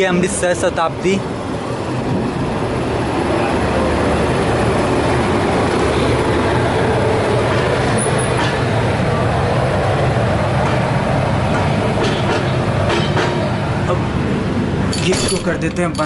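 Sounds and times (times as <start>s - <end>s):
air rushing through open door: 0.0s - 12.0s
train wheels rumbling on rails: 0.0s - 16.0s.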